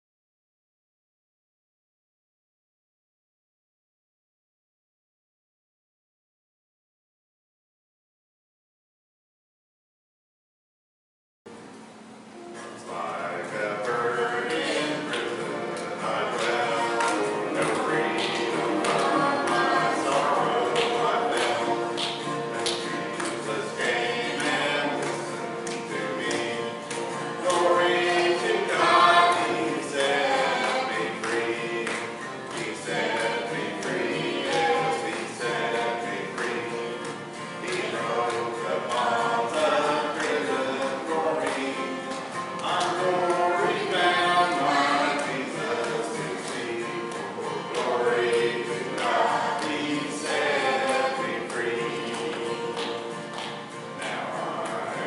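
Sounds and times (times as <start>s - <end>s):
acoustic guitar strumming: 11.6s - 55.0s
voices singing a hymn: 12.6s - 55.0s
piano accompaniment: 13.8s - 41.7s.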